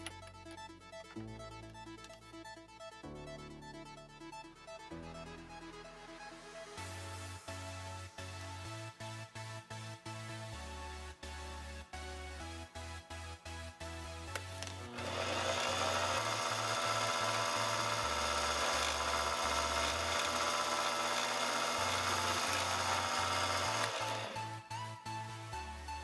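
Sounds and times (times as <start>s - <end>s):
electronic background music: 0.0s - 26.0s
lathe cutting metal with whine: 14.9s - 24.4s.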